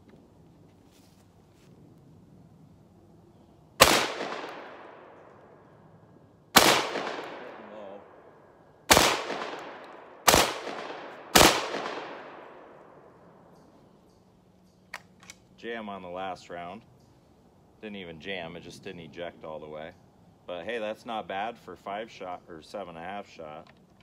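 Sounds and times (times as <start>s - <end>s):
shotgun shots echoing: 3.8s - 5.3s, 6.5s - 8.3s, 8.9s - 13.1s.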